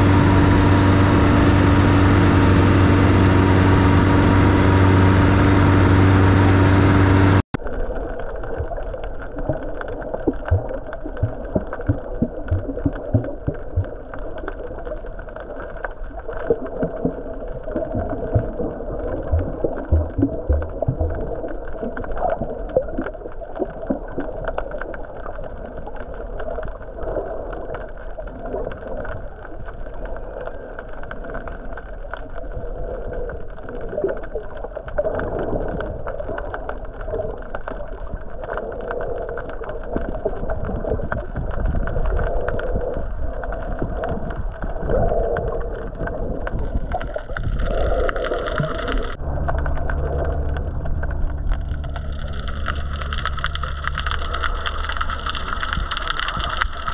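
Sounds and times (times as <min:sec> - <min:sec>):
steady low hum: 0:00.0 - 0:07.4, 0:49.1 - 0:56.9
underwater water rushing: 0:00.0 - 0:56.9
small crackles and pops: 0:07.6 - 0:56.9.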